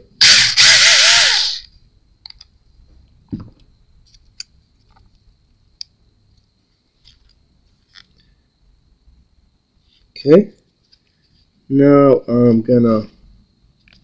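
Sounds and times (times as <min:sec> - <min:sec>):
loud raspy burst: 0:00.0 - 0:01.7.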